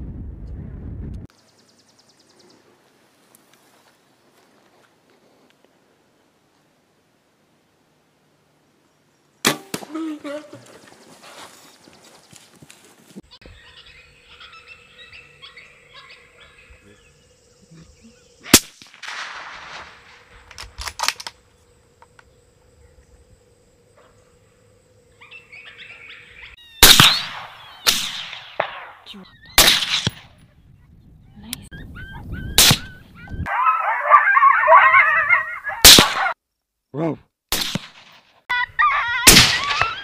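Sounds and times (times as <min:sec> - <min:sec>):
animal calls: 0:13.3 - 0:18.4, 0:25.1 - 0:26.8, 0:31.2 - 0:36.4, 0:38.5 - 0:40.0
rifle shots: 0:18.5 - 0:21.3, 0:26.8 - 0:29.0, 0:29.6 - 0:30.3, 0:35.8 - 0:36.3, 0:37.5 - 0:38.2, 0:39.3 - 0:40.0.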